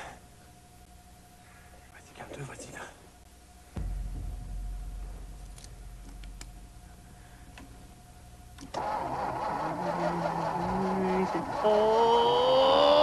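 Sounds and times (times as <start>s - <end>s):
low rumble: 3.5s - 9.8s
low thump: 3.8s - 8.8s
car engine: 8.6s - 13.0s.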